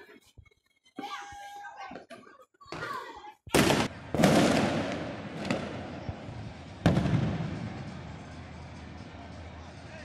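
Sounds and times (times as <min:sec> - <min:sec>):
fireworks exploding: 0:03.5 - 0:08.4.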